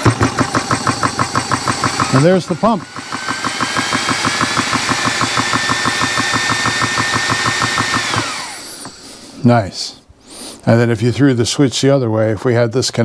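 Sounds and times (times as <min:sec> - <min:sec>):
compressor piston pump running: 0:00.0 - 0:09.2
compressor whine: 0:00.0 - 0:09.5.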